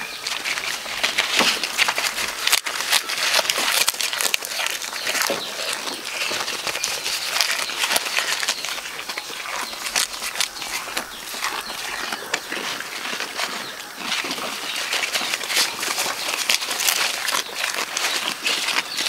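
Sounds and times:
goat chewing leaves: 0:00.0 - 0:19.0.

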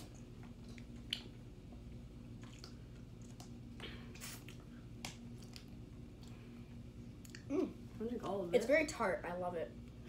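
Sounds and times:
wet sip: 0:02.4 - 0:04.7.

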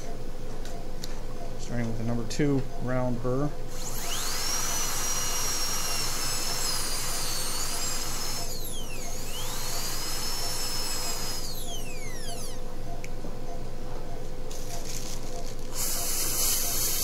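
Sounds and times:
dental drill whining: 0:03.6 - 0:12.7, 0:14.5 - 0:17.0.

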